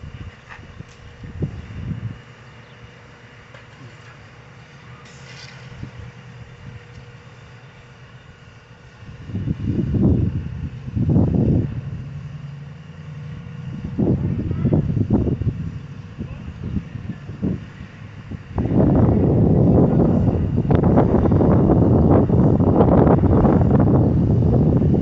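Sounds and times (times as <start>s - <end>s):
wind buffeting microphone: 0.0s - 2.8s, 5.5s - 7.2s, 8.4s - 25.0s
steady low hum: 0.0s - 25.0s.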